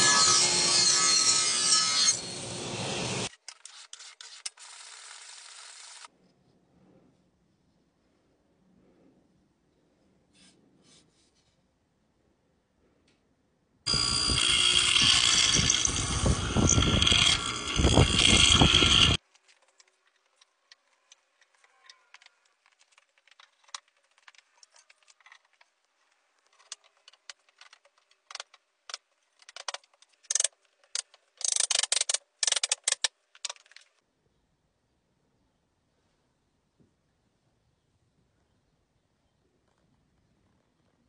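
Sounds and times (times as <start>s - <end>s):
woodworking power tool running: 13.9s - 19.2s.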